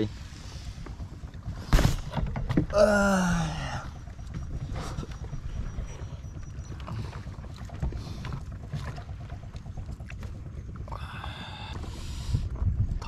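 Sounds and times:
low rumble of water: 0.0 - 13.0
wind: 0.0 - 13.0.

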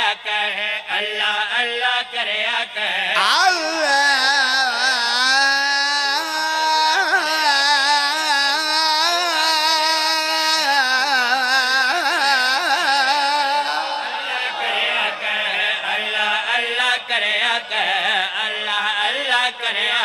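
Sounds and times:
man singing ornamented notes: 0.0 - 20.0
men chanting along: 11.7 - 18.1.

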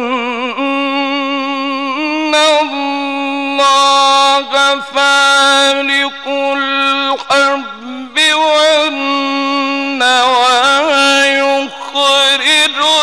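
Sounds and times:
man chanting melodically: 0.0 - 13.0.

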